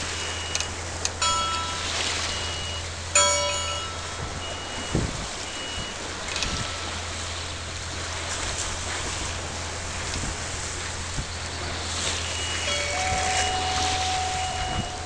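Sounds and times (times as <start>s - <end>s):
water rushing past boat: 0.0s - 15.0s
electronic chime: 0.1s - 7.0s, 12.2s - 15.0s
high beeps: 2.3s - 2.9s, 4.4s - 6.5s, 12.2s - 15.0s.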